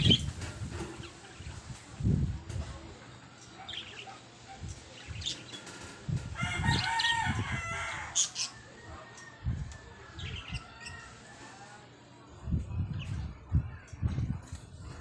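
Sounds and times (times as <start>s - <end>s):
rooster crowing: 6.4s - 11.7s.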